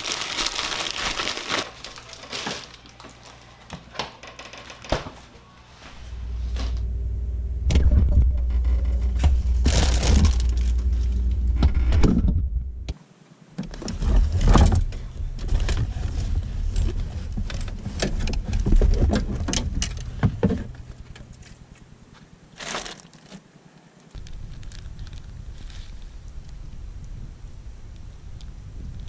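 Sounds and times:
plastic bag rustling: 0:00.0 - 0:03.9, 0:09.5 - 0:11.1, 0:22.5 - 0:23.5, 0:24.2 - 0:26.3
steady low hum: 0:05.4 - 0:13.0.

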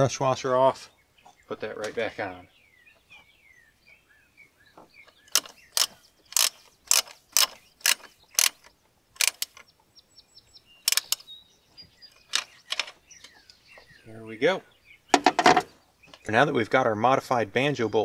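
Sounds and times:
ratcheting wrench clicking: 0:05.3 - 0:09.6, 0:10.8 - 0:11.3.

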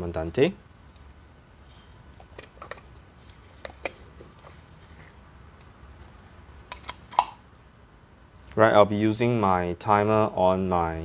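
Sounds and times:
coffee grinder parts clicking: 0:06.7 - 0:07.3.

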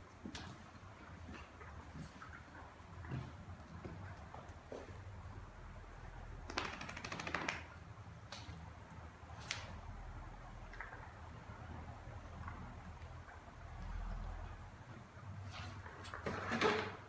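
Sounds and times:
puppy claws clicking on tiles: 0:06.4 - 0:08.4.

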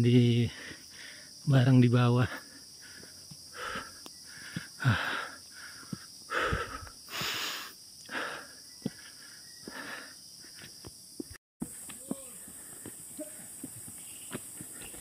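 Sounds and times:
person panting hard: 0:00.5 - 0:01.4, 0:02.3 - 0:10.7, 0:12.3 - 0:13.9.

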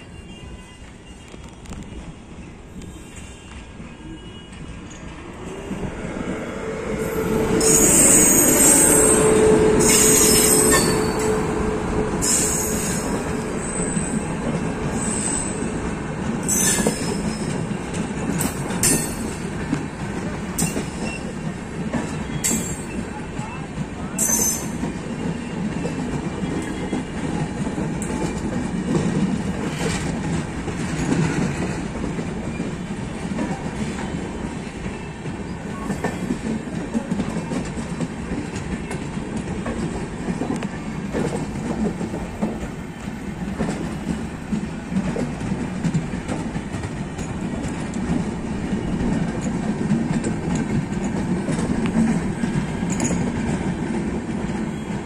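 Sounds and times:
train coaches rumbling: 0:00.0 - 0:55.0
wheels clacking over rail joints: 0:07.4 - 0:55.0.

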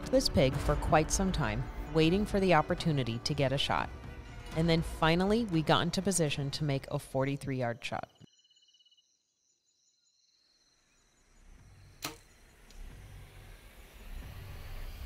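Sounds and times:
insects chirping: 0:08.3 - 0:11.9
bow string snap: 0:12.0 - 0:12.9.

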